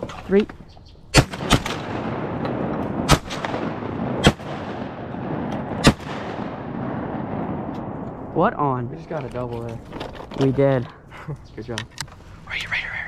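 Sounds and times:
shotgun blasts: 0:01.1 - 0:08.1.

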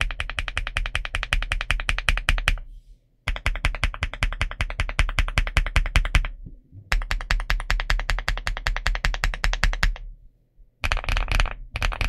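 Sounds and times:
mechanical keyboard typing: 0:00.0 - 0:02.6, 0:03.3 - 0:10.1, 0:10.8 - 0:12.0.

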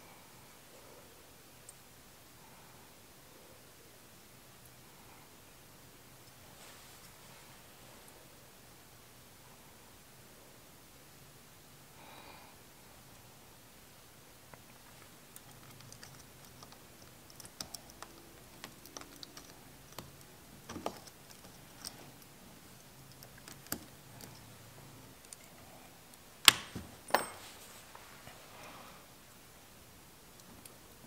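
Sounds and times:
small metal parts clicking: 0:15.3 - 0:22.3.

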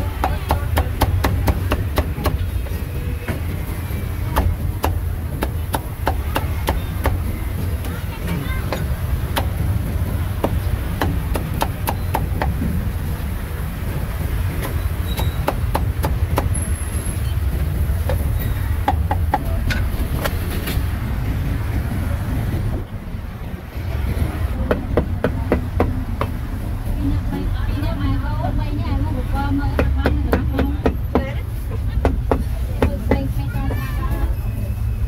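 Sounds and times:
sharp knocks and clicks: 0:14.6 - 0:16.6.

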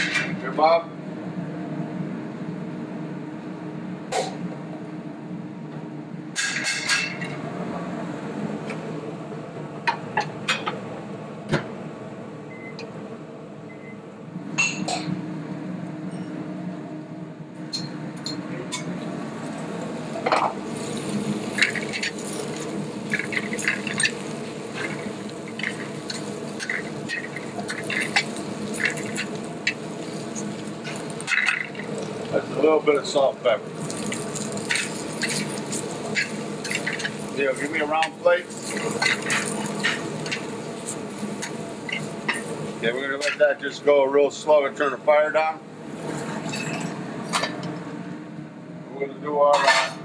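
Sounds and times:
kitchen hum: 0:00.0 - 0:50.0
metal tongs clinking in a pan: 0:38.0 - 0:40.4.

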